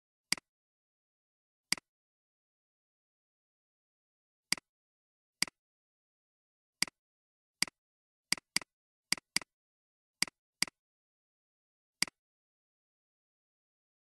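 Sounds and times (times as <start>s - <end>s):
computer mouse clicks: 7.6s - 9.5s.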